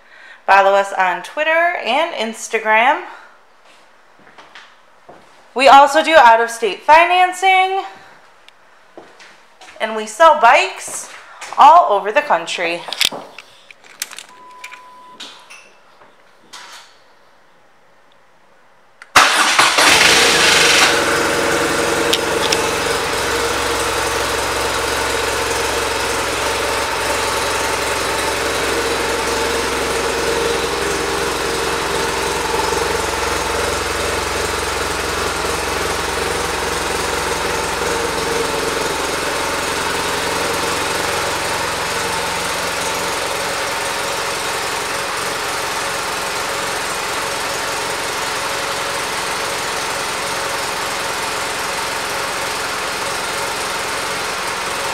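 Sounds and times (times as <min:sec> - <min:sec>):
motorcycle engine idling: 0:19.7 - 0:54.9.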